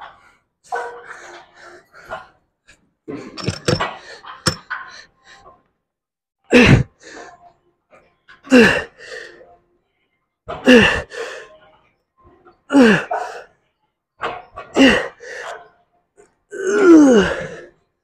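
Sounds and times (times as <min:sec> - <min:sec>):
man grunting with effort: 0:06.5 - 0:06.9, 0:16.5 - 0:17.6.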